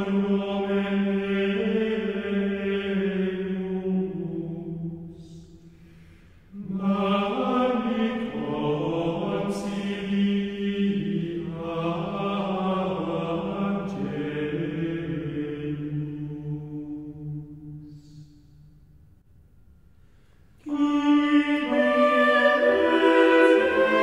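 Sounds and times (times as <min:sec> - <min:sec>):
voices chanting: 0:20.6 - 0:24.0.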